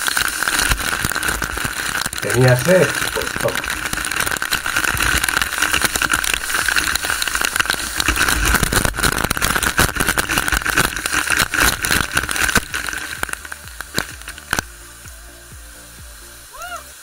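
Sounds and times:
water rushing down metal pipe: 0.0s - 17.0s.

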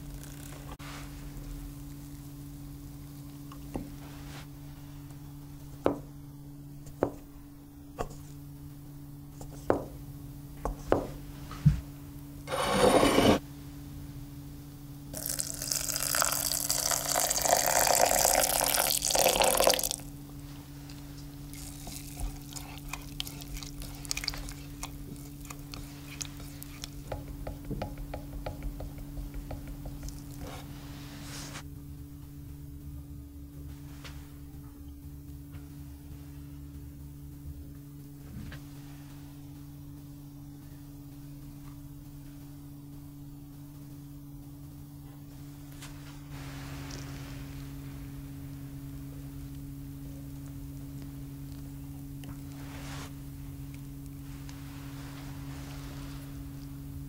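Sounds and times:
milk pouring into jug: 15.2s - 20.0s.

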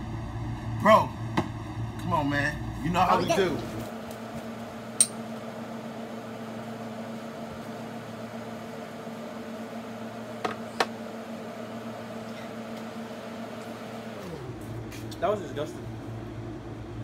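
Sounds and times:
electric motor humming: 0.0s - 5.0s.

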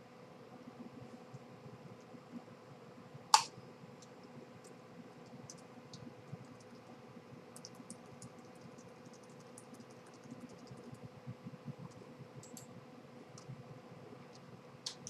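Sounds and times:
keyboard typing clicks: 7.6s - 11.0s, 11.9s - 12.7s.

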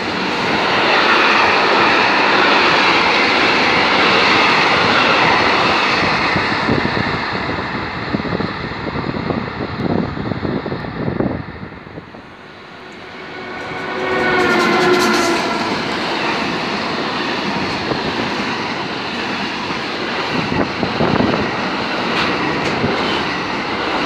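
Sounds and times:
train wheels rushing on rail: 0.0s - 24.0s
train knocking: 12.0s - 24.0s.

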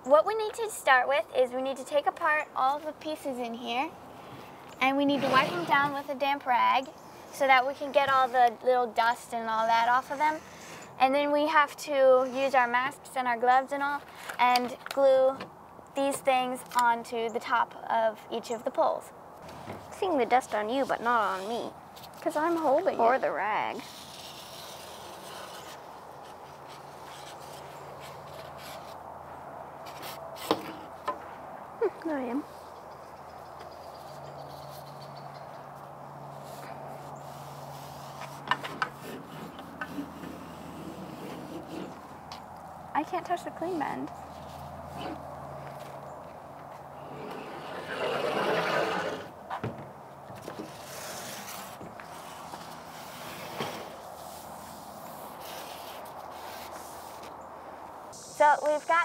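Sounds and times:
rustling and rubbing of poles: 3.3s - 6.2s, 19.4s - 31.4s, 32.5s - 57.5s
cloth rubbing on mast pole: 5.0s - 6.2s, 36.3s - 42.2s, 47.0s - 49.3s, 50.4s - 57.4s.

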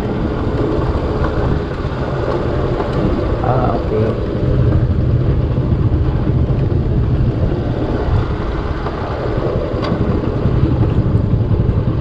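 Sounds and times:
motorcycle engine rumbling: 0.0s - 12.0s
road noise: 0.0s - 12.0s.

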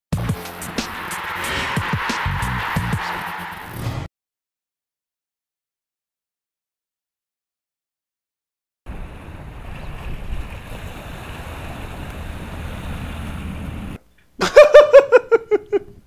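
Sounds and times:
wind and water noise: 8.9s - 14.0s
man laughing loudly: 14.4s - 16.0s.

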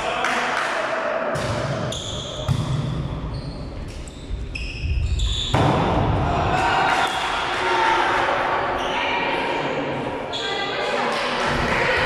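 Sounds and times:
volleyball hits echoing: 1.3s - 3.3s, 5.5s - 7.5s.

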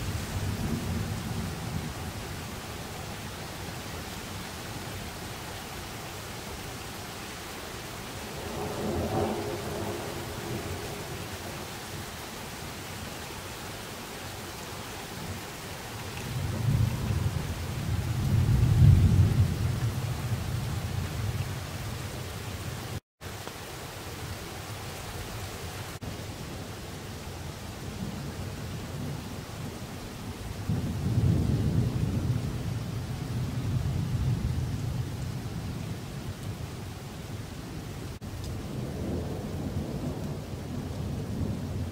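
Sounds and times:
thunder rumbling: 8.3s - 11.7s, 16.2s - 21.6s, 30.6s - 35.6s, 38.2s - 41.9s.

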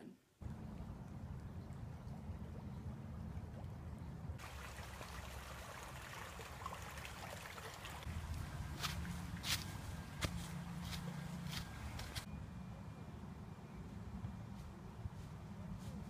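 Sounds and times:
shallow stream running: 0.4s - 12.3s.

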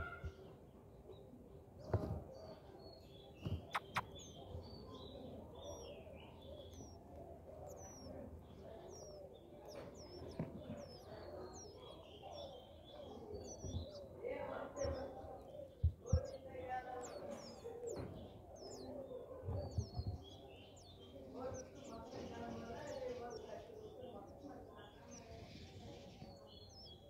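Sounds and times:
nestlings begging with high chirps: 0.0s - 27.0s
sharp clicks: 3.7s - 4.1s.

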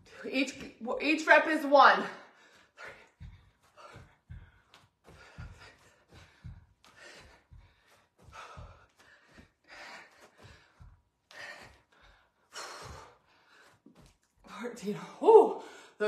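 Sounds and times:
person breathing hard: 2.2s - 14.1s
feet thudding on carpet: 2.8s - 14.4s.

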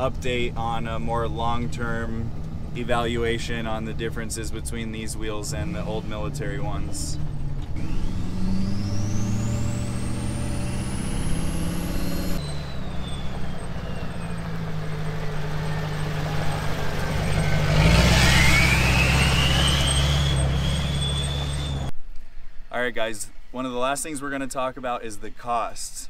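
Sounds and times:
diesel engine running: 0.0s - 21.9s
turbo whistle: 17.2s - 21.9s.

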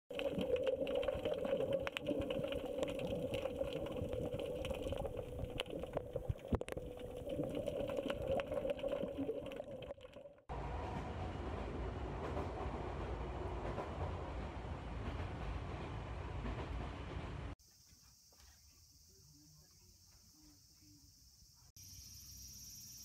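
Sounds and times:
muffled underwater hum: 0.1s - 9.9s
underwater crackles and clicks: 0.1s - 10.5s
train running rumble: 10.5s - 17.6s.

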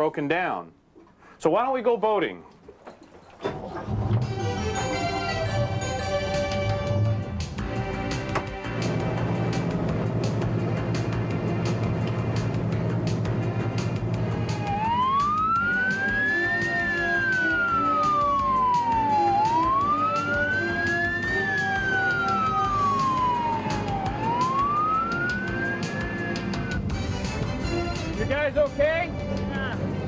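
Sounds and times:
emergency siren wailing: 14.0s - 27.0s.

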